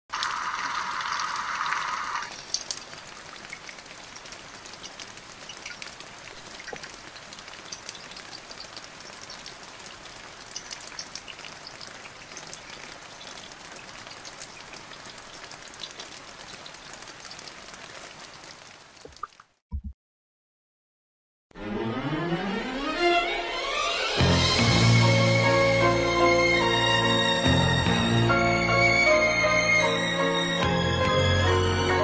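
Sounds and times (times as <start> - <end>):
steady rain falling: 0.1 - 19.6.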